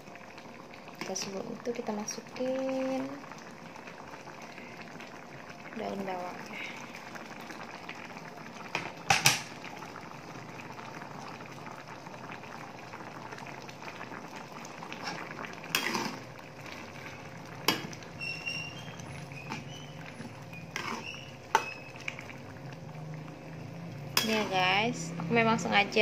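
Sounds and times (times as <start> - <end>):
sauce bubbling in a wok: 0.0 - 26.0
spatula knocking wok: 24.2 - 24.6.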